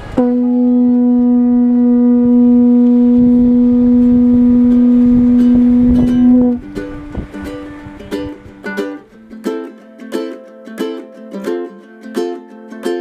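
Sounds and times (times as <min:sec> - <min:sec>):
conch shell trumpet note: 0:00.0 - 0:06.6.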